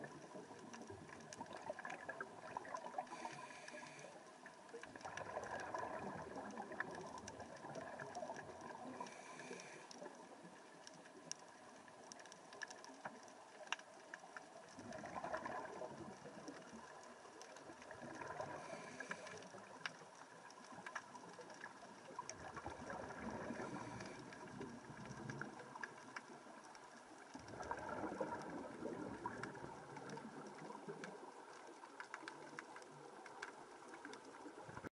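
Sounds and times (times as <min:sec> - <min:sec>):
bubbles gurgling underwater: 0:00.0 - 0:03.2, 0:04.7 - 0:09.2, 0:14.8 - 0:19.8, 0:20.5 - 0:26.6, 0:27.3 - 0:31.9
faint clicks: 0:00.0 - 0:34.9
steady hiss: 0:02.9 - 0:04.5, 0:08.8 - 0:12.1, 0:18.4 - 0:19.8.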